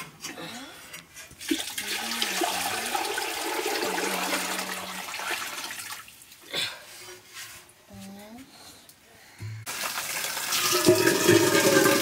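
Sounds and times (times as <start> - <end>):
water pouring into a metal pot: 1.4 - 6.2, 9.7 - 12.0.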